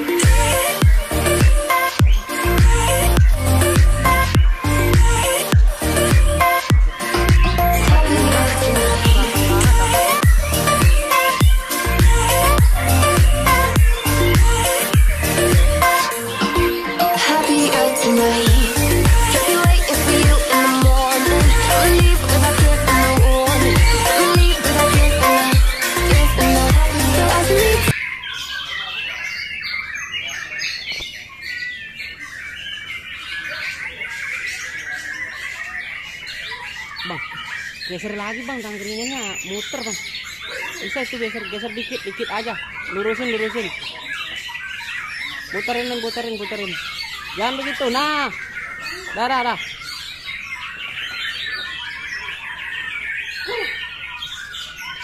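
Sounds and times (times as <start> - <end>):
bird singing whistled notes: 0.0 - 22.1, 27.8 - 55.0
electronic music: 0.0 - 28.0.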